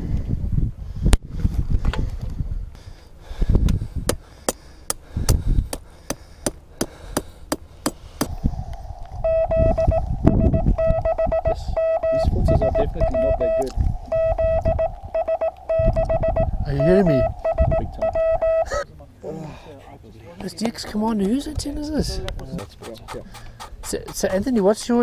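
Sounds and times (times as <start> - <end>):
morse code tone: 9.2 - 18.8.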